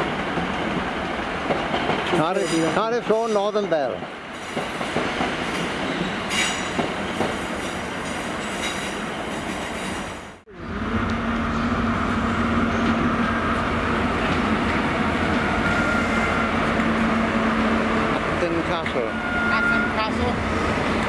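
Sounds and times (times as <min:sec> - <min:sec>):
train rumbling along rails: 0:00.0 - 0:21.0
diesel engine humming: 0:10.5 - 0:21.0
wheel squeal: 0:15.4 - 0:16.6.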